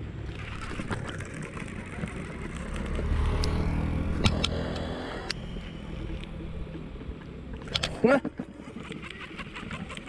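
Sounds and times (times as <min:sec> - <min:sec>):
vehicle engine passing: 0:00.0 - 0:07.6.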